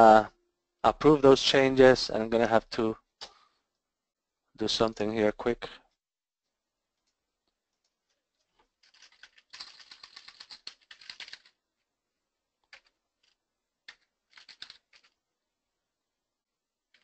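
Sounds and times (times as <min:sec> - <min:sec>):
typing on computer keyboard: 0:08.6 - 0:11.6, 0:12.6 - 0:15.2.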